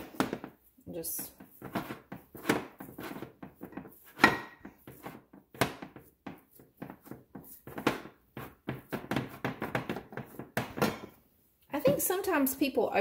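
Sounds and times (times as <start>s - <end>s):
rubbing and handling noises: 0.0s - 10.8s
glass pans knocking on countertop: 4.2s - 4.7s, 8.8s - 11.2s.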